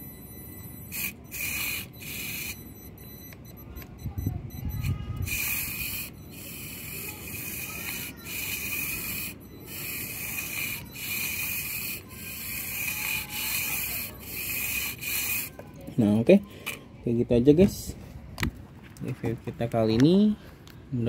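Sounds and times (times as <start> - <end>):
toy car electric motor whining: 0.5 - 3.4, 4.5 - 15.7.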